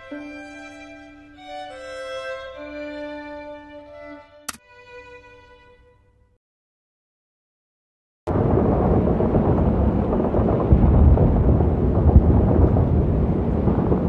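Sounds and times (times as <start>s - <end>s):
distant artillery rumble: 8.3s - 14.0s.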